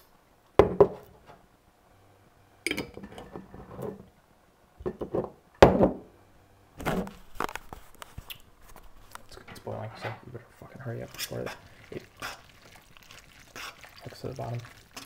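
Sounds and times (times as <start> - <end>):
glass jar and pot clinking: 2.7 - 3.3.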